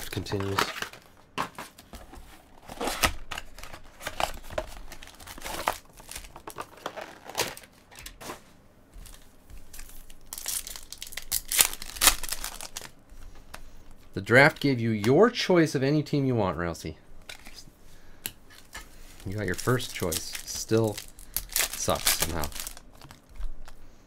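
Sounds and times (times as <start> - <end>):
foil wrappers crinkling: 0.0 - 1.2, 2.7 - 8.3, 9.0 - 13.6, 18.5 - 23.8
wrapper tearing open: 2.8 - 7.7, 9.8 - 13.0, 19.2 - 23.8.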